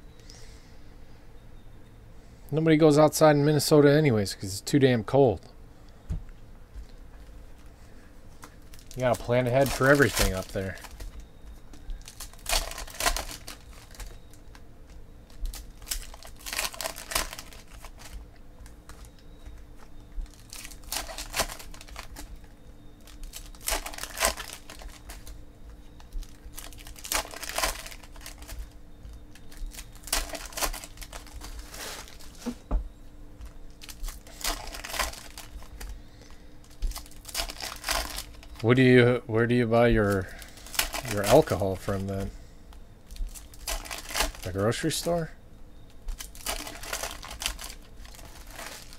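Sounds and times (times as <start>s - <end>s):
foil wrappers crinkling and tearing: 7.5s - 32.7s, 33.4s - 38.9s, 39.9s - 45.3s, 45.9s - 48.9s.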